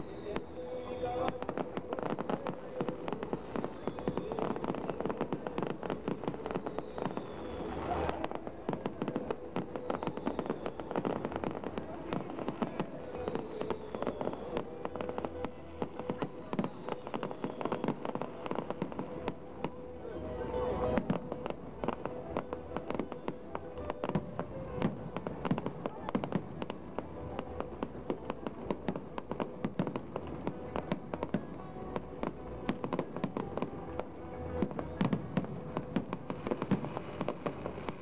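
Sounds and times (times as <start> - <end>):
firework whistle falling in pitch: 0.0 - 26.7, 27.7 - 38.0
fireworks crackling and popping: 0.0 - 38.0.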